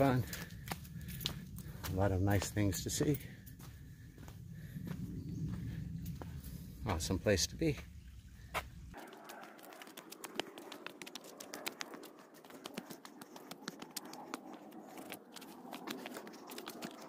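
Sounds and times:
footsteps crunching on trail: 0:00.0 - 0:07.0, 0:07.7 - 0:17.0.

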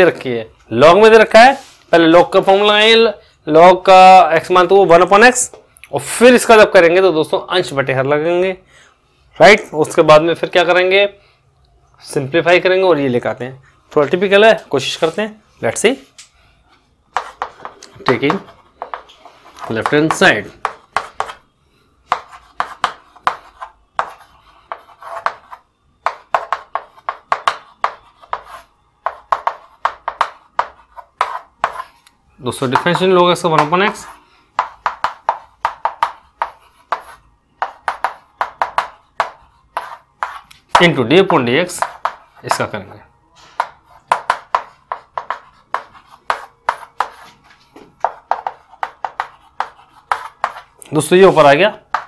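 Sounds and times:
chalk tapping and scratching on chalkboard: 0:17.1 - 0:21.5, 0:22.1 - 0:52.0.

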